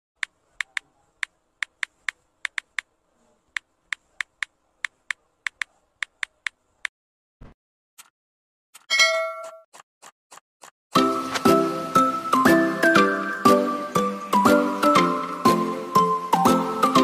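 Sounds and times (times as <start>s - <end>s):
keyboard typing clicks: 0.2s - 2.9s, 3.6s - 6.6s.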